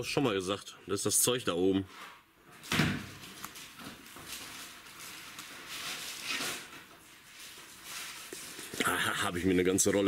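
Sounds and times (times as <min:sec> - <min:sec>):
faint rustling and handling: 0:01.7 - 0:10.0.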